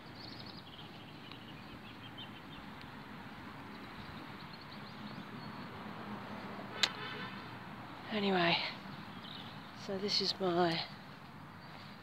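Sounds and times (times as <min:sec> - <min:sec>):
small birds chirping: 0:00.0 - 0:12.0
sharp click: 0:06.8 - 0:07.0.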